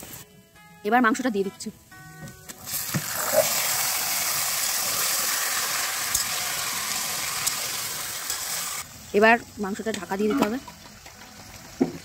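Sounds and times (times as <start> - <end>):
chicken sizzling in hot oil: 2.6 - 12.0.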